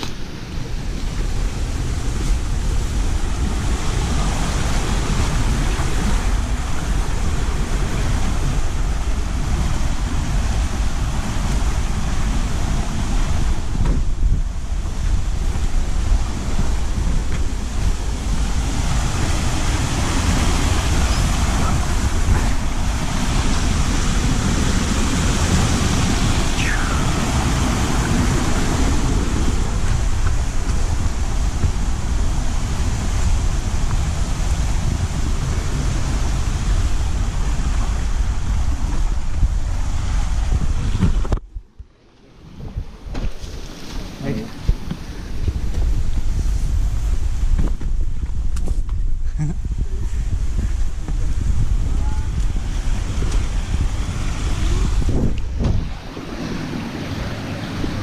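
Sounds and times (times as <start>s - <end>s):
stream rushing over rocks: 0.0s - 41.4s, 42.5s - 58.0s
wind buffeting microphone: 0.0s - 58.0s
short falling whistle: 26.6s - 27.2s.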